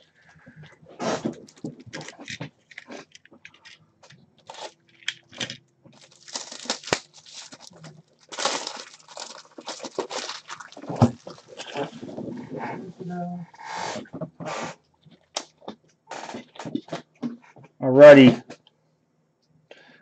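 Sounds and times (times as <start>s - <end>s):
plastic crinkling and rustling: 0.0s - 13.1s.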